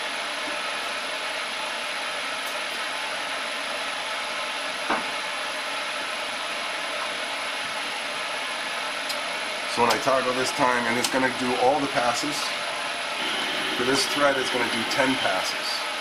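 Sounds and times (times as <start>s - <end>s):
lathe spindle whirring: 11.0s - 16.0s.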